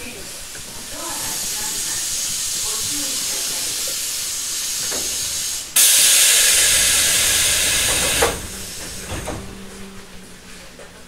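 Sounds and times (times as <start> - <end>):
compressed air hissing: 0.9 - 9.2
loud burst of air: 4.2 - 9.0.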